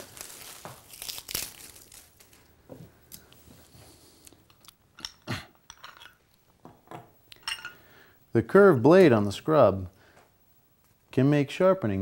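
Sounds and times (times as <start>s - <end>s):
wood shavings crunching: 0.0s - 2.4s.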